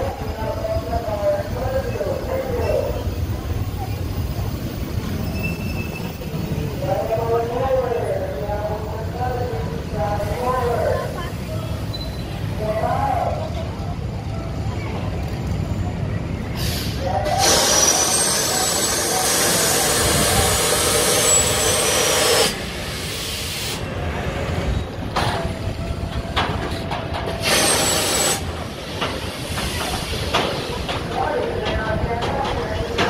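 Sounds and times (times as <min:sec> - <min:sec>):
pneumatic air hissing: 0:16.6 - 0:23.9, 0:27.4 - 0:30.8.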